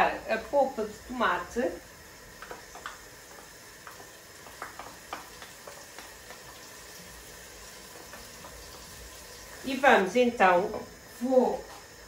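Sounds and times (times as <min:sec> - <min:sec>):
sauce simmering with small pops: 0:01.8 - 0:09.7.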